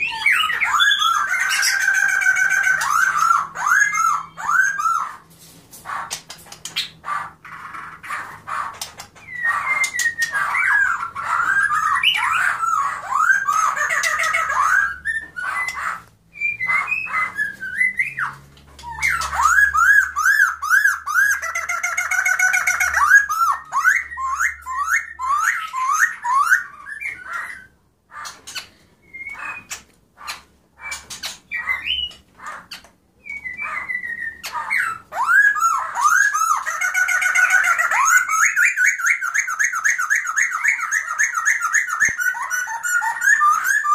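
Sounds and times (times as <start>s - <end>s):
songbird singing: 0.0s - 5.3s, 5.9s - 43.9s.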